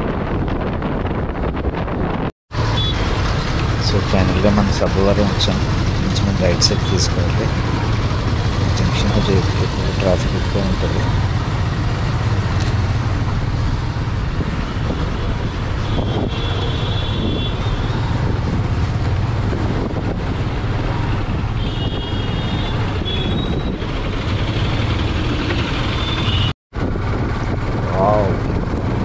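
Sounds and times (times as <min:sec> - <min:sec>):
wind rumble on microphone: 0:00.0 - 0:02.3, 0:07.2 - 0:29.0
road noise: 0:00.0 - 0:29.0
motorbike engine running: 0:02.7 - 0:15.0.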